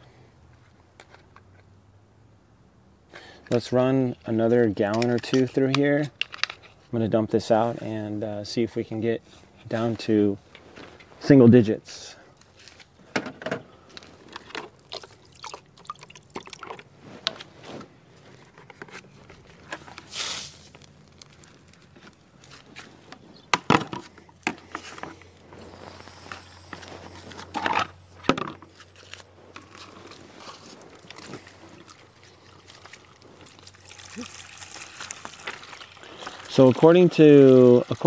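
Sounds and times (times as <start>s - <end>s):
water splashing and trickling: 14.8s - 16.9s, 30.5s - 38.0s.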